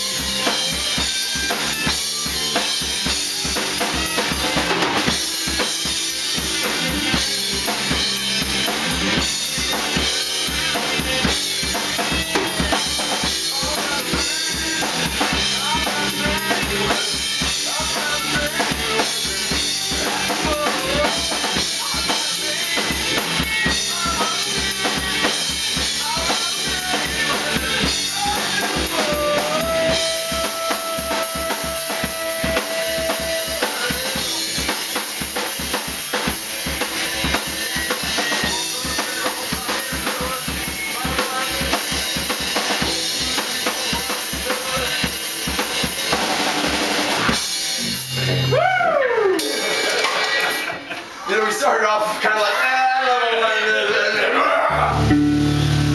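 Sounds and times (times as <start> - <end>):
man singing: 0.0 - 1.3, 10.7 - 35.0, 36.2 - 46.4
bass guitar: 0.0 - 49.4, 54.7 - 55.9
electric guitar: 0.0 - 51.1, 54.7 - 55.9
drum kit beat: 0.0 - 51.2, 54.7 - 55.9.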